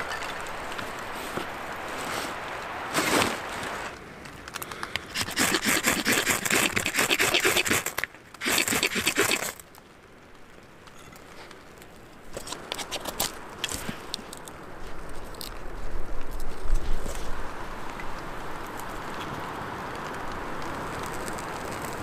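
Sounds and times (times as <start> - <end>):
faint crackles of catching fire: 0.0 - 22.0
knife scraping ferro rod: 5.1 - 9.6.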